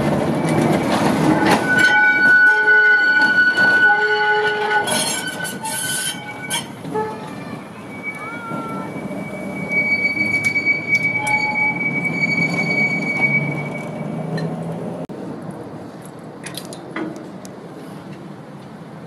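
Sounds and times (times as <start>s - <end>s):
tram rumbling: 0.0s - 19.0s
high-pitched wheel squeal: 0.4s - 14.3s.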